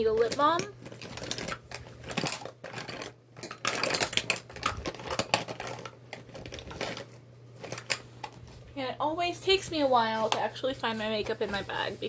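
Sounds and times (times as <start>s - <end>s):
cosmetics clicking and clattering: 0.0s - 8.4s.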